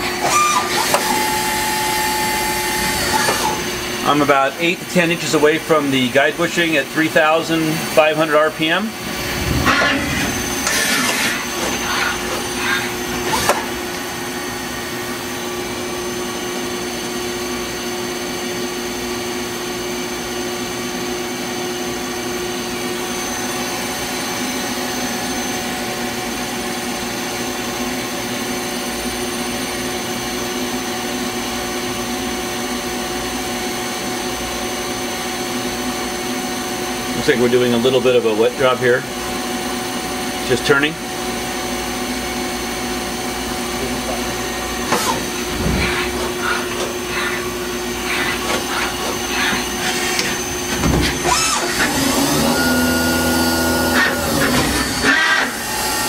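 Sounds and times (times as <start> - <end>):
harsh machine noises: 0.0 - 16.2, 43.0 - 56.0
lathe machine whirring: 0.0 - 17.5, 42.0 - 56.0.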